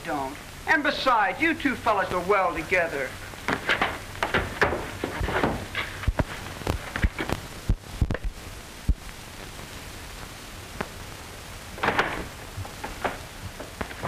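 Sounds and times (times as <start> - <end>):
film soundtrack hiss: 0.0 - 14.0
dull knocks and thumps: 3.5 - 7.4.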